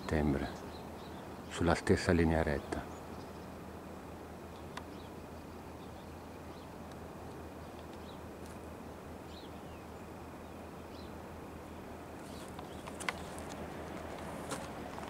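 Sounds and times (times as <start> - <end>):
low background hum: 0.0 - 15.0
camera handling clicks and rustles: 12.3 - 15.0.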